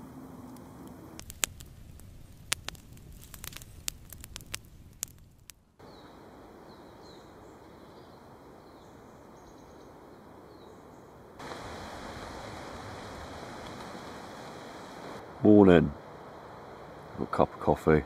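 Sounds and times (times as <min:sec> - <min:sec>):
steady background hiss: 0:05.7 - 0:18.0
rush of wind: 0:11.4 - 0:17.4.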